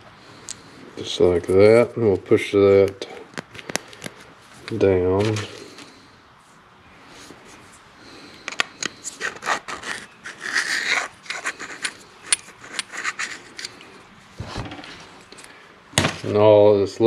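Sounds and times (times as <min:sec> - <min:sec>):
hands rubbing metal cylinder: 0:08.4 - 0:13.9.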